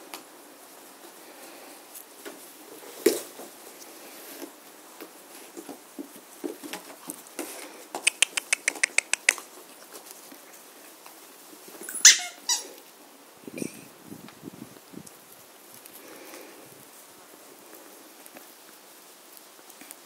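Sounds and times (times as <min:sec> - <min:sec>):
light taps and rustles: 0:02.0 - 0:11.2
rapid sharp clicks: 0:08.0 - 0:09.4.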